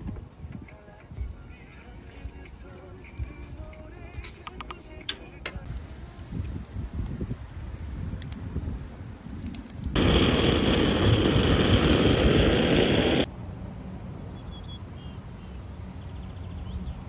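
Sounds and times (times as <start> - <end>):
meat sizzling on a grill: 5.7 - 13.3.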